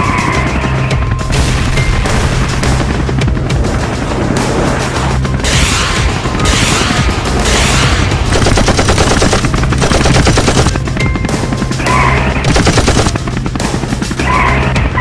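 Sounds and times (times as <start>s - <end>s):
action film music: 0.0s - 15.0s
machine-gun fire: 5.5s - 10.9s, 12.4s - 13.3s.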